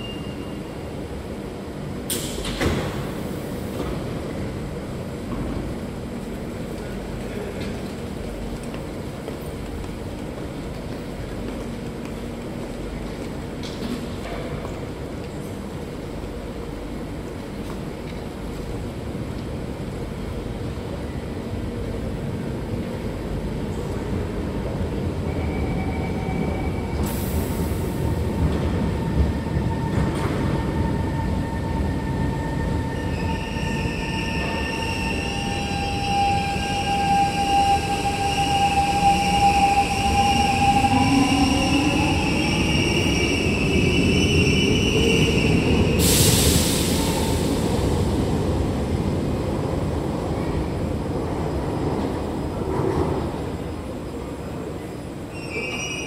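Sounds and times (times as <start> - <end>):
broad hiss of departing train: 2.1 - 4.3, 26.4 - 29.6, 33.1 - 49.2.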